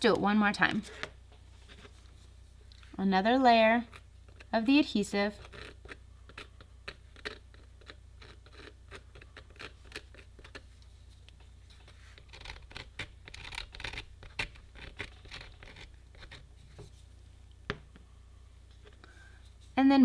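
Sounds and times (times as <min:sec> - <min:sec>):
bottle tip scratching on plastic pipe: 0:05.2 - 0:10.6.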